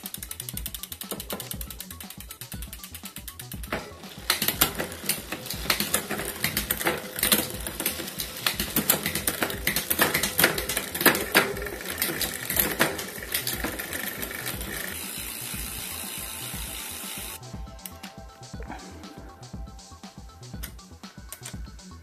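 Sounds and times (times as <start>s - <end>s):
bicycle chain whirring: 0.0s - 17.5s
bicycle freewheel ratcheting clicks: 0.0s - 18.0s.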